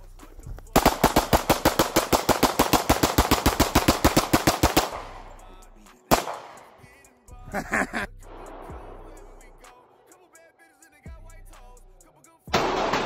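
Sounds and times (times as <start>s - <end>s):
pistols rapid fire: 0.7s - 7.1s, 12.5s - 13.0s.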